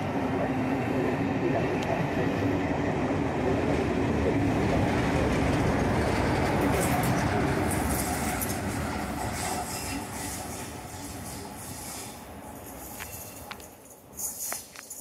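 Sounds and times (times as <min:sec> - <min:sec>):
diesel locomotive passing: 0:00.0 - 0:14.7
train wheels clattering on rails: 0:04.6 - 0:15.0.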